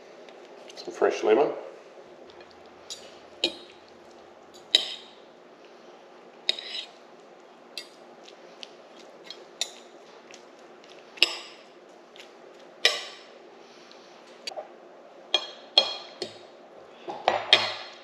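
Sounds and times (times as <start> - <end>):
cutlery clinking on a plate: 4.6 - 5.1, 6.5 - 6.9.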